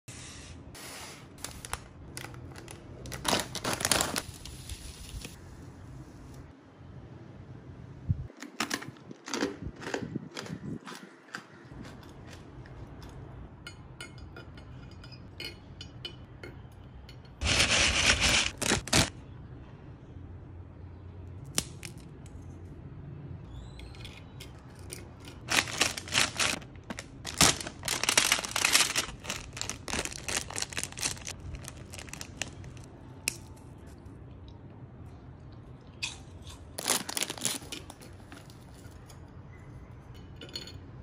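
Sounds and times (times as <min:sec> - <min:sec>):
crackling snack packets: 0:01.4 - 0:04.5, 0:17.4 - 0:19.1, 0:25.2 - 0:33.5, 0:36.8 - 0:38.6.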